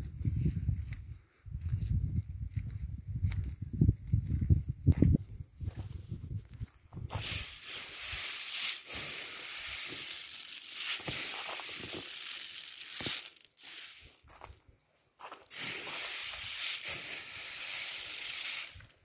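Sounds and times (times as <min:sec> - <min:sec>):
plastic sack rustling: 0:07.1 - 0:14.3, 0:15.4 - 0:19.0
sharp crackles: 0:07.1 - 0:14.5.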